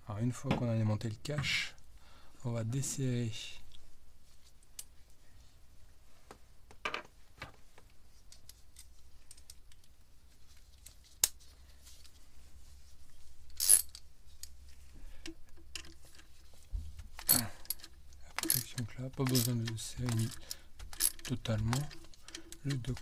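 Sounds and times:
tools clicking and clinking: 0:15.2 - 0:16.3, 0:17.2 - 0:23.0.

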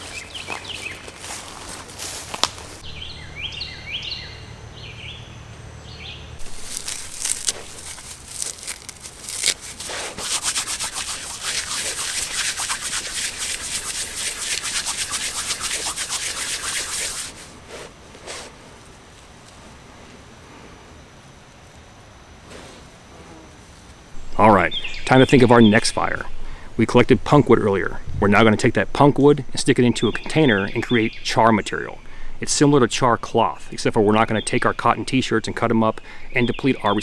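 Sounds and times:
tinder rubbed between palms: 0:06.4 - 0:19.6.

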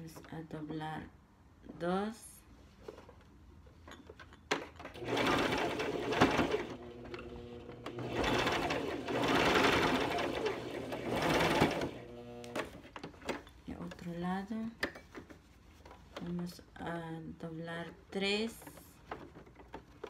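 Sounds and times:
electric sewing machine stitching: 0:05.0 - 0:12.8.

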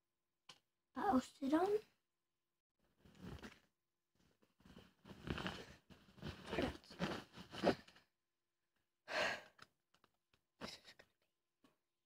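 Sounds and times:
rustling and scuffing at microphone: 0:04.7 - 0:07.8.

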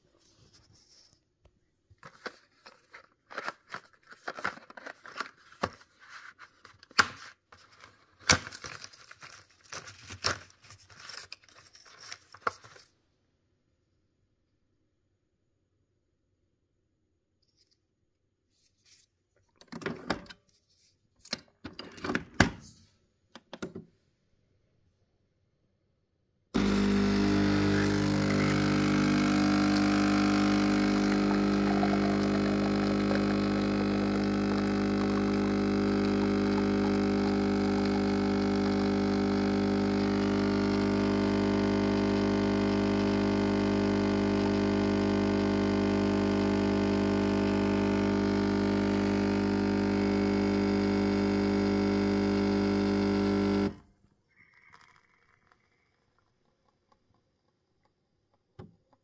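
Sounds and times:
coffee machine pump buzzing: 0:26.6 - 0:53.8.

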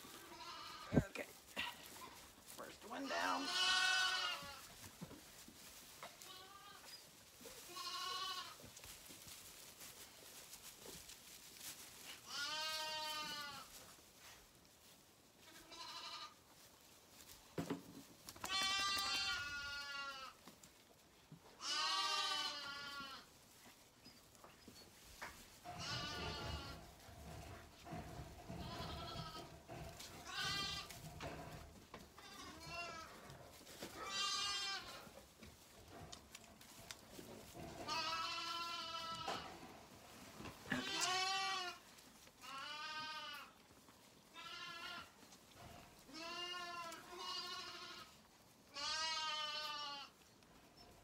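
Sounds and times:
lambs bleating: 0:00.1 - 0:01.2, 0:03.0 - 0:04.8, 0:06.0 - 0:08.7, 0:12.2 - 0:13.8, 0:15.4 - 0:16.4, 0:18.4 - 0:20.4, 0:21.6 - 0:23.3, 0:25.6 - 0:26.9, 0:27.9 - 0:31.0, 0:32.2 - 0:33.2, 0:33.8 - 0:35.1, 0:37.8 - 0:39.5, 0:40.7 - 0:43.6, 0:44.3 - 0:45.3, 0:46.1 - 0:50.2.

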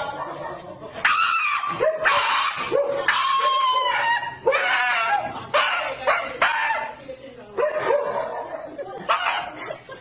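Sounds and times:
dog yelping: 0:01.0 - 0:07.0.

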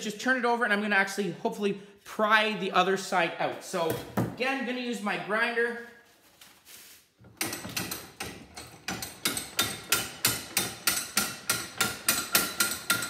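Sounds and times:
vise handle bar clanking: 0:07.3 - 0:13.0.

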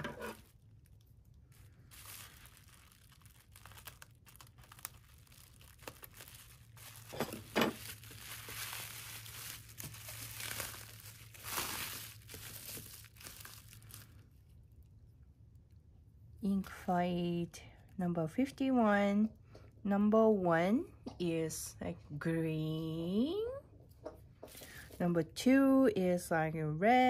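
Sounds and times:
bubble wrap crinkling: 0:00.2 - 0:15.0.

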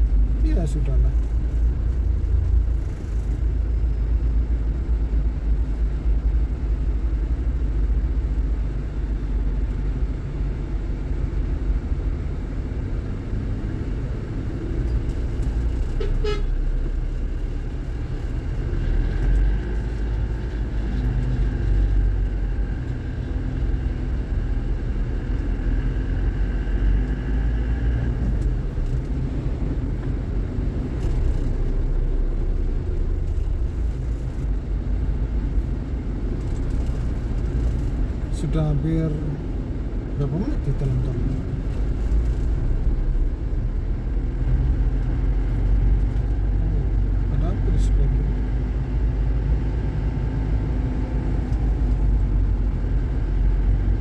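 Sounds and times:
car engine and road noise: 0:00.0 - 0:54.0
car horn toot: 0:16.0 - 0:16.6.

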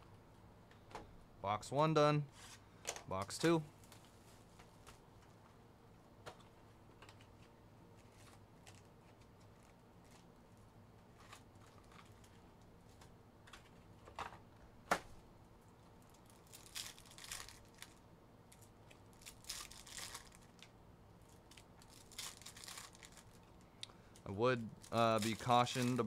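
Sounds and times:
foil wrappers crinkling and tearing: 0:16.0 - 0:20.7, 0:21.3 - 0:23.6, 0:24.7 - 0:26.0.

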